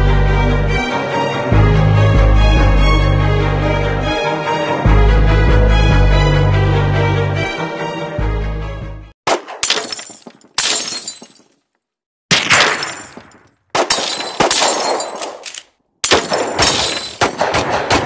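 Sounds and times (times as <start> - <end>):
glass shattering cracks: 9.3 - 11.8, 12.4 - 17.4
tinkling falling glass shards: 16.6 - 17.2.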